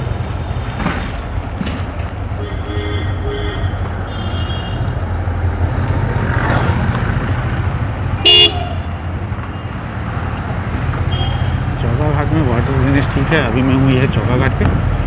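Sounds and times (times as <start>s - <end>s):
faint horn toots: 2.4s - 4.9s, 8.2s - 8.9s
loud vehicle horn honk: 2.4s - 4.9s, 8.2s - 8.9s, 11.1s - 11.6s.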